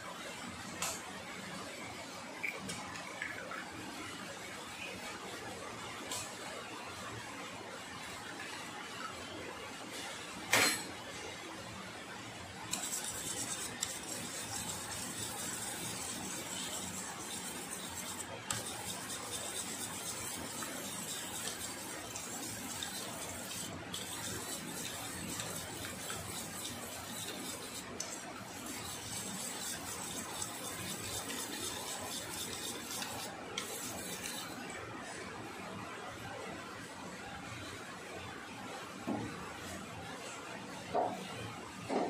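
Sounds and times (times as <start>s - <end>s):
whisk beating batter in metal bowl: 12.7s - 34.6s.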